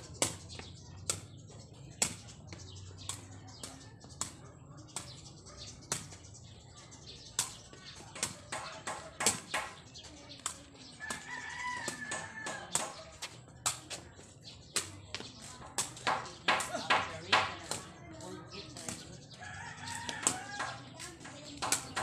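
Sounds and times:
rooster crowing: 0:19.4 - 0:20.8.

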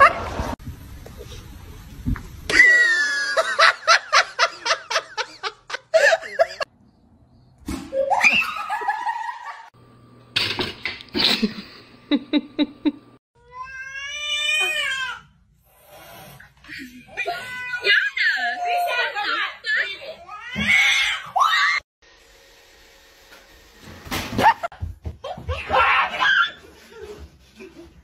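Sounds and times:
person laughing: 0:02.5 - 0:06.7, 0:11.1 - 0:13.1.

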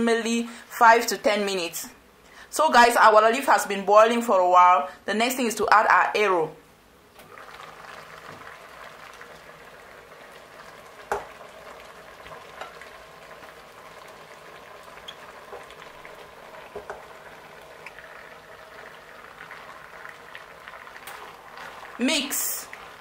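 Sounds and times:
pot of water boiling: 0:07.2 - 0:23.0.

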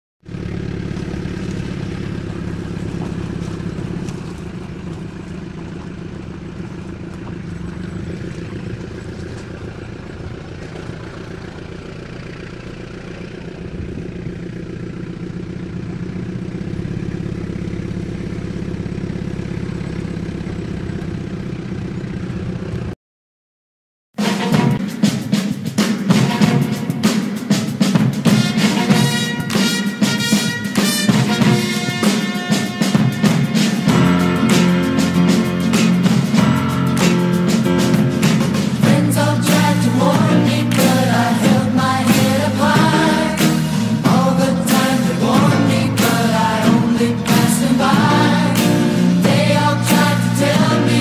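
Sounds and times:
car engine running: 0:00.2 - 0:23.0, 0:26.2 - 0:51.0
music with drums: 0:24.2 - 0:51.0.

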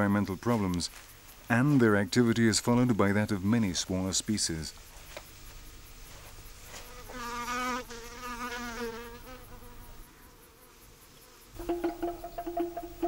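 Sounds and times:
fly buzzing: 0:06.1 - 0:13.0
music with regular beat: 0:11.6 - 0:13.0.

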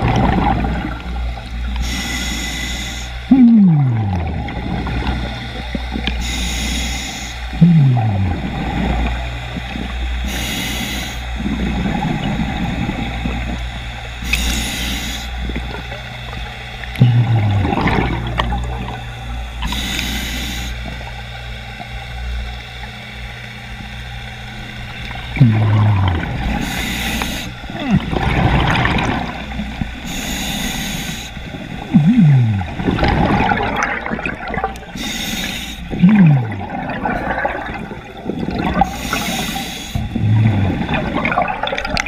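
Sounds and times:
gurgling exhaled bubbles: 0:00.0 - 0:01.8, 0:03.3 - 0:06.2, 0:07.5 - 0:10.4, 0:11.4 - 0:14.5, 0:15.4 - 0:19.8, 0:24.8 - 0:30.1, 0:31.4 - 0:42.0
low hum: 0:00.0 - 0:42.0
regulator inhale hiss: 0:01.6 - 0:03.3, 0:06.0 - 0:07.6, 0:08.4 - 0:13.6, 0:14.2 - 0:15.9, 0:19.6 - 0:21.2, 0:25.6 - 0:27.8, 0:29.7 - 0:31.8, 0:34.8 - 0:36.0, 0:38.7 - 0:40.8.

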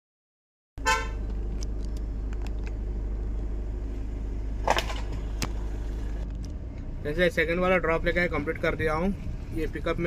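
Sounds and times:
car engine rumble inside cabin: 0:00.8 - 0:10.0.

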